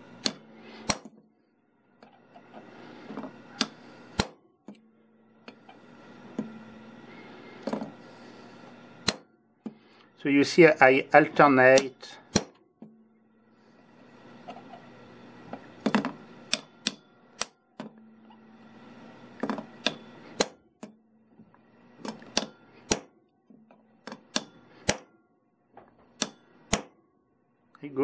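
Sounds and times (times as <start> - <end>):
hammer tapping steel punch: 0.2 - 1.1, 3.1 - 5.6, 15.8 - 18.1, 19.4 - 21.0, 22.0 - 23.1, 23.7 - 25.1, 26.1 - 27.0.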